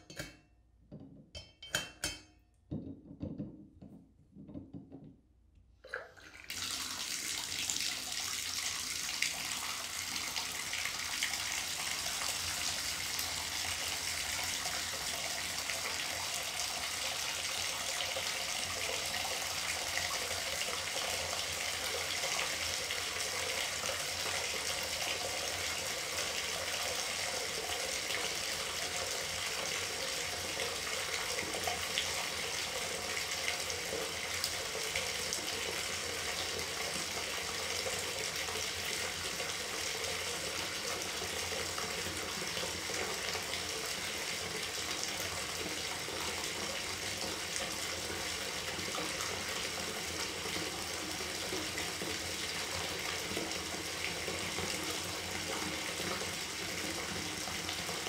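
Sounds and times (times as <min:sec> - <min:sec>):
bathtub tap turning: 0:00.0 - 0:05.3
water pouring into tub: 0:05.8 - 0:58.0.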